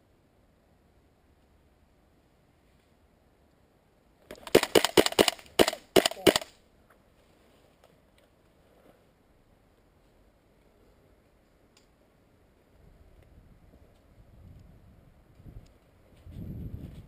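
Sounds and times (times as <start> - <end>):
airsoft rifle shots: 4.3 - 6.6.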